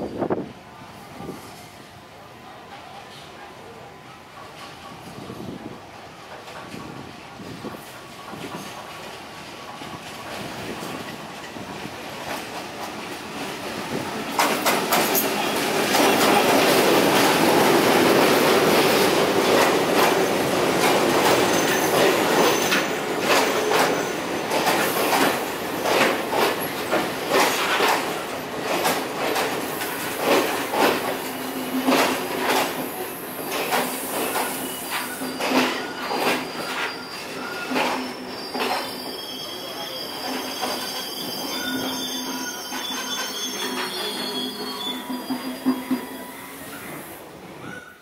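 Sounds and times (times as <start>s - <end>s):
diesel locomotive passing: 0.0s - 35.2s
wheels clacking over rail joints: 7.8s - 32.9s.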